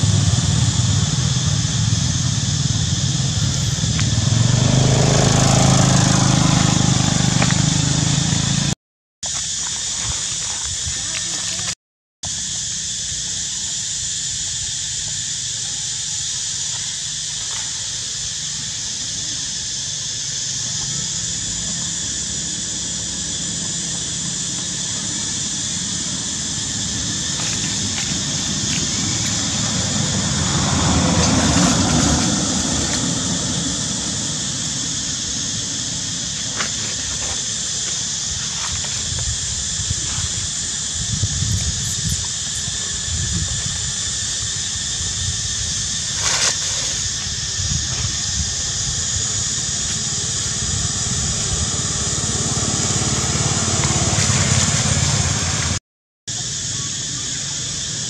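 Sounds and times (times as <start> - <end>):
high-pitched insect drone: 0.0 - 58.0.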